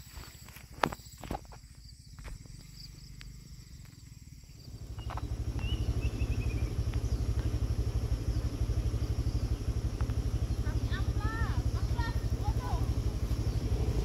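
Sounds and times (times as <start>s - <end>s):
bird chirping: 2.6s - 9.6s, 10.3s - 14.0s
small engine running: 2.9s - 14.0s.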